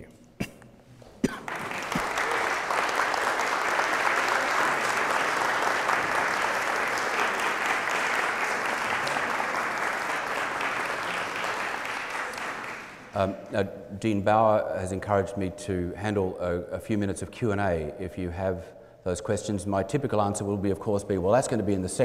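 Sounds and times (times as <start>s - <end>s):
audience applauding: 1.3s - 13.3s.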